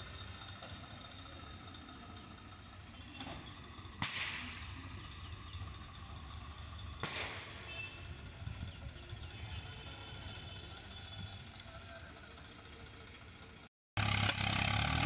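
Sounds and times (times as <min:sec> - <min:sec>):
tractor diesel engine rumbling: 0:00.0 - 0:15.0
sharp cracks: 0:04.0 - 0:04.8, 0:07.0 - 0:07.7.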